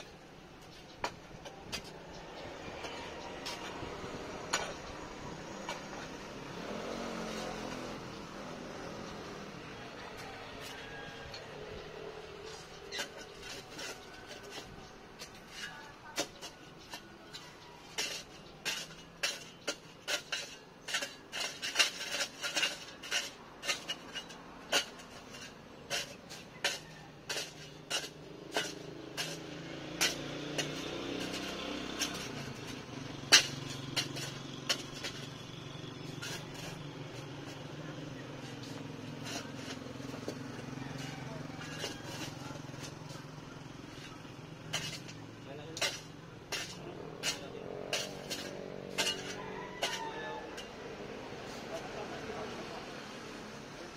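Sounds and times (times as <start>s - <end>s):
shovel striking stony soil: 17.9s - 52.0s.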